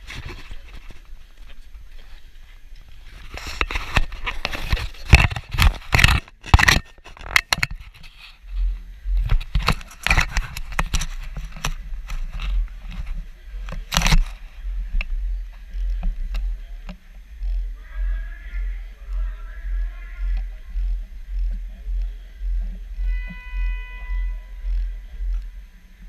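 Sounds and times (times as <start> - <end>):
sharp knocks and scrapes: 2.9 - 14.4
low steady rumble: 8.1 - 26.0
scattered clicks: 9.1 - 23.0.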